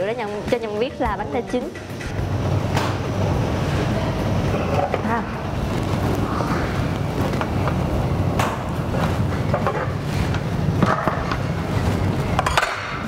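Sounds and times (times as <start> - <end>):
low rumble from stove: 2.1 - 12.4.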